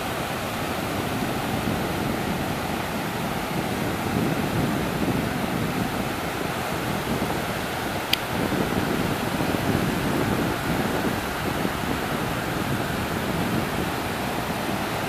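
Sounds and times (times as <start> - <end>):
sea surf breaking: 0.0 - 15.0.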